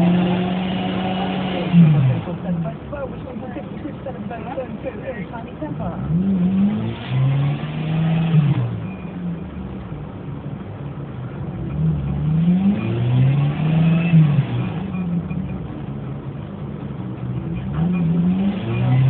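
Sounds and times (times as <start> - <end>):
engine revving: 0.0 - 2.8, 5.9 - 9.5, 11.5 - 15.7, 17.3 - 19.0.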